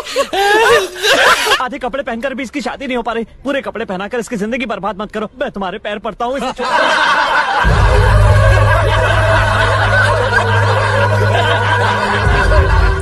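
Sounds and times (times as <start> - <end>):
people laughing and snickering: 0.0 - 1.6, 6.4 - 13.0
steady low drone: 7.6 - 13.0.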